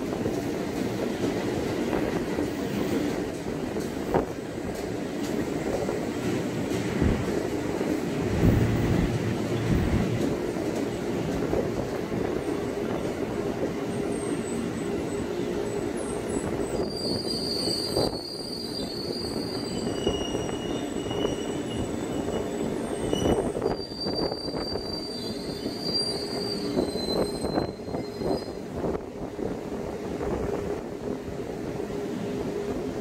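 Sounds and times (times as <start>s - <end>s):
train wheels rumbling on track: 0.0s - 33.0s
high-pitched wheel squeal: 16.6s - 28.6s.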